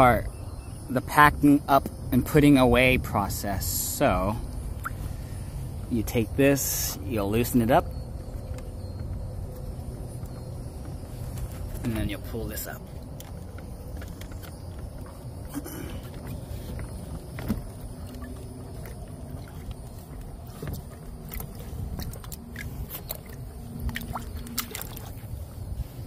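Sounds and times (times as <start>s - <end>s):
low handling rumble: 1.9s - 26.0s.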